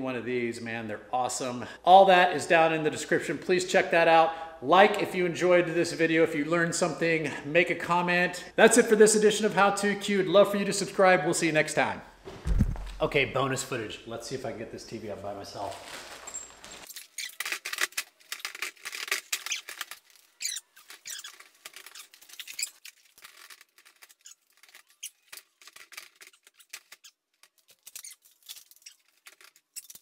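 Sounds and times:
clicks scrapes and rattles of metal: 0:16.8 - 0:30.0.

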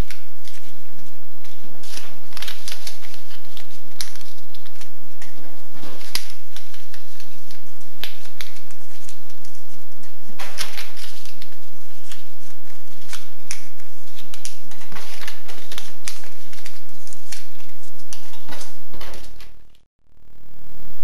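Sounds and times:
steady low hum: 0:15.9 - 0:21.0.

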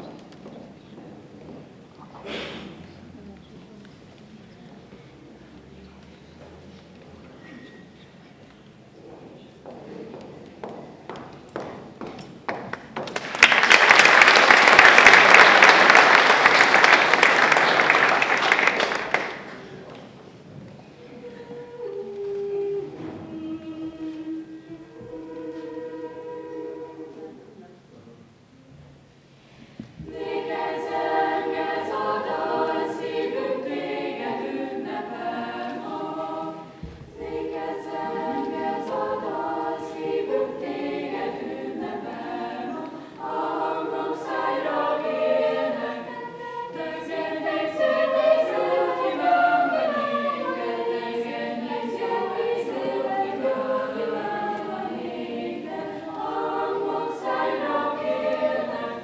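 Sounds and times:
choir singing unaccompanied: 0:13.4 - 0:19.6, 0:20.9 - 0:27.8, 0:30.0 - 0:59.0.

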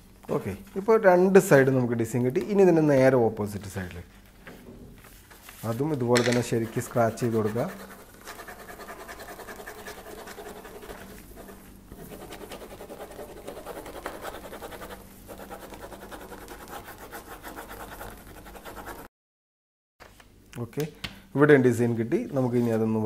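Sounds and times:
paper rubbed against tabletop: 0:05.1 - 0:06.0, 0:06.6 - 0:19.1.

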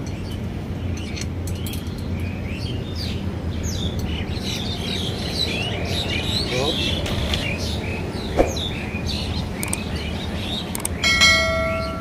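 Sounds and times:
small birds chirping: 0:00.0 - 0:11.1.

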